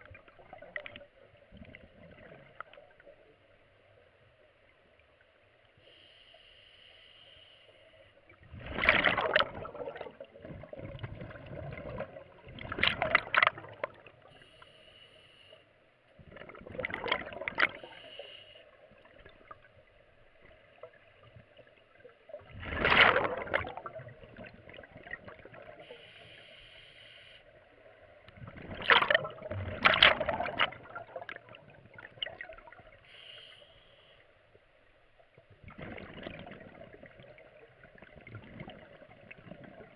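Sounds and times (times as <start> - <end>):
regulator hiss on inhale: 5.8 - 8.2, 14.2 - 16.0, 17.8 - 18.9, 25.8 - 27.6, 33.0 - 34.6
exhaled bubbles gushing: 8.4 - 14.3, 16.2 - 18.0, 22.3 - 25.9, 28.3 - 33.0, 35.6 - 39.9.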